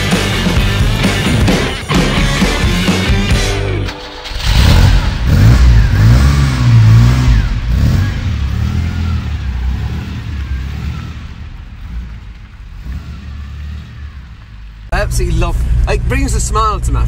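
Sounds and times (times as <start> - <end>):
car engine revving: 0.0 - 17.0.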